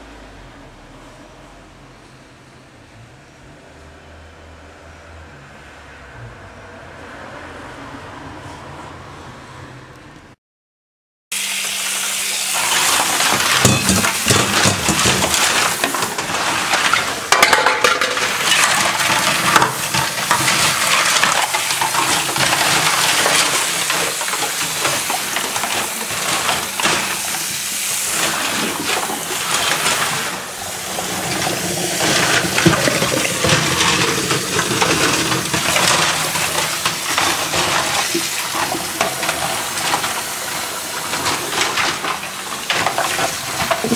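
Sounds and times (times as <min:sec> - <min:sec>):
water running and splashing: 0:11.4 - 0:43.9.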